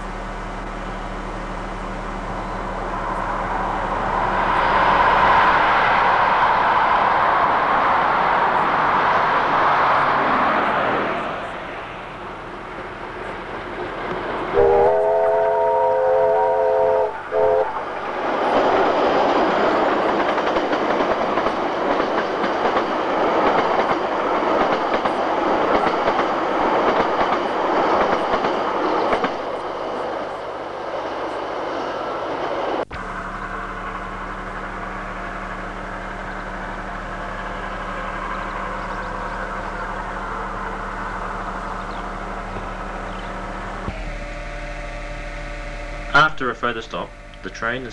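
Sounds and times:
low hum: 0.0s - 7.8s, 10.6s - 18.2s, 32.8s - 46.3s
train wheels rattling past: 0.4s - 43.9s
steam locomotive whistle chord: 14.5s - 17.9s.

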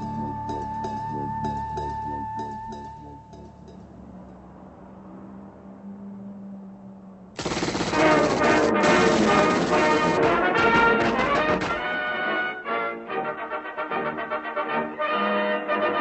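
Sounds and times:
soft music: 0.0s - 4.8s, 11.7s - 16.0s
rapid submachine-gun fire: 7.4s - 11.9s
loud brass music: 7.8s - 16.0s.

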